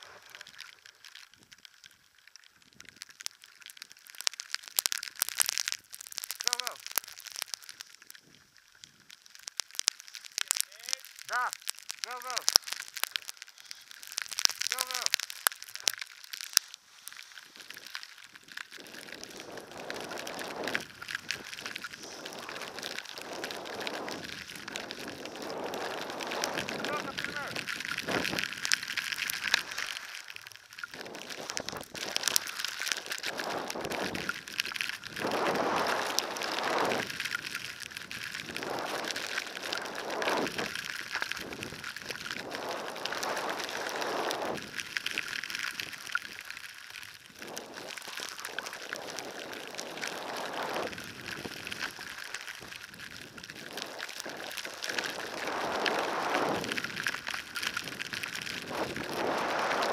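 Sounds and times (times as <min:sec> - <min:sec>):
wind hiss on microphone: 0:00.0 - 0:00.5, 0:16.8 - 0:30.2, 0:30.9 - 0:46.4, 0:47.3 - 0:59.9
skis scraping across snow: 0:16.5 - 0:30.3, 0:30.9 - 0:45.9, 0:47.4 - 0:53.0, 0:53.6 - 0:59.9.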